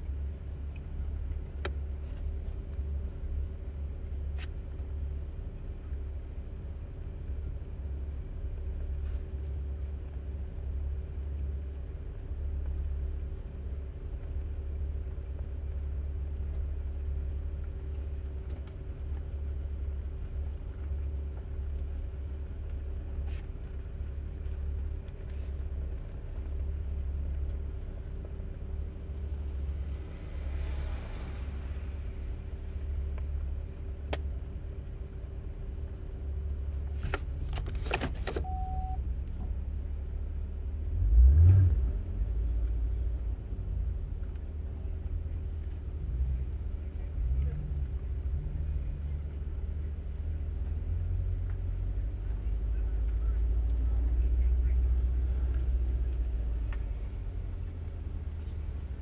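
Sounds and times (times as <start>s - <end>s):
car engine idling: 0.0s - 59.0s
short beep: 38.4s - 39.0s.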